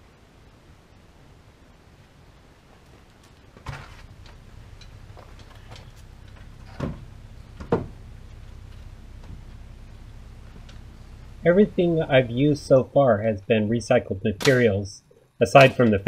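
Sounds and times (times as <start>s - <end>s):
low steady hum: 0.0s - 16.0s
wooden boards knocking: 7.6s - 8.0s.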